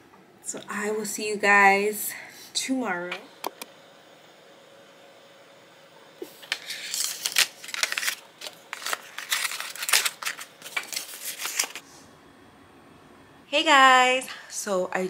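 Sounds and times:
cardboard packaging rustling: 6.3 - 11.8.

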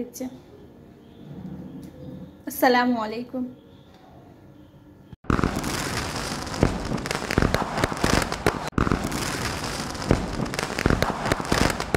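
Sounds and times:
dense crackle of sharp pops: 5.2 - 11.9.

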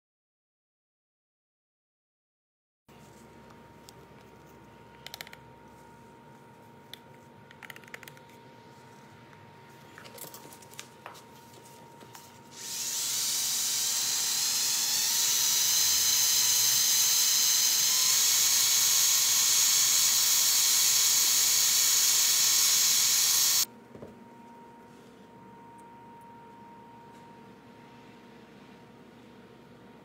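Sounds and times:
electric drill stirring liquid: 12.5 - 23.7.

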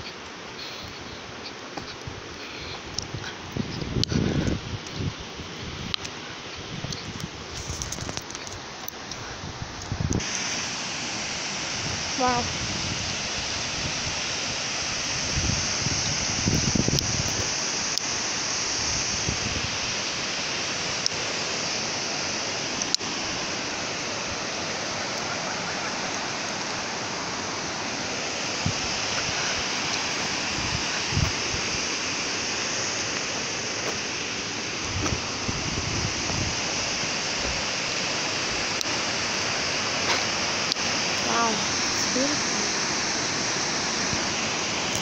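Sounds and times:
waterfall rushing: 0.0 - 45.0
soft low bumps: 34.8 - 37.8.

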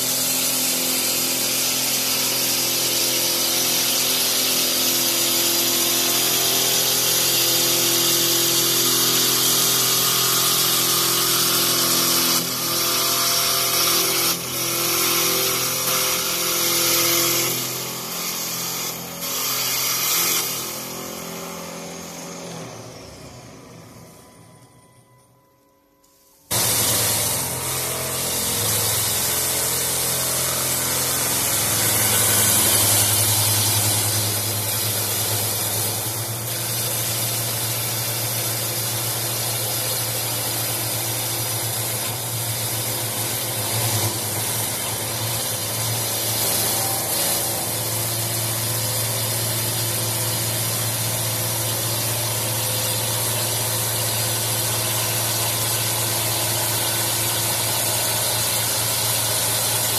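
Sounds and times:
lathe tools shaving wood: 0.0 - 23.5, 26.5 - 59.9
motor hum: 26.5 - 38.4.

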